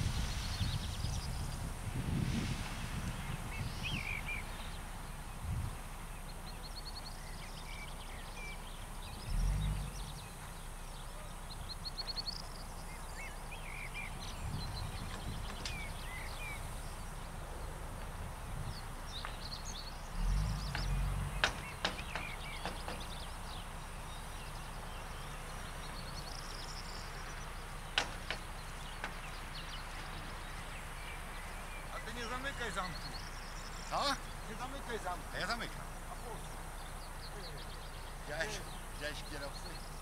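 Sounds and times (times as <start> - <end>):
wind gusts on microphone: 0.0 - 6.2, 14.0 - 19.5
small birds chirping: 0.0 - 40.0.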